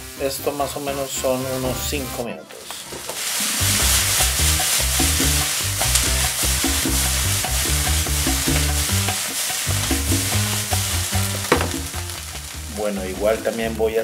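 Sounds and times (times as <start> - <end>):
background music with low notes: 0.0 - 14.0
vegetables sizzling in a frying pan: 2.8 - 14.0.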